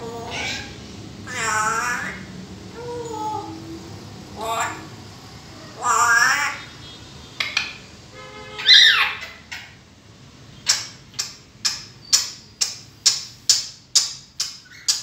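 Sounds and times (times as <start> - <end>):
parrot sharp clicks: 10.7 - 15.0.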